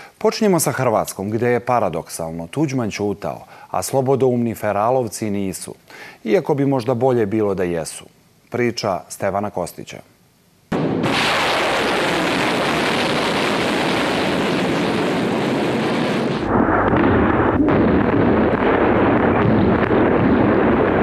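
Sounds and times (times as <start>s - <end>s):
deep rumble of explosions: 10.7s - 21.0s
rocket booster roaring: 10.8s - 21.0s.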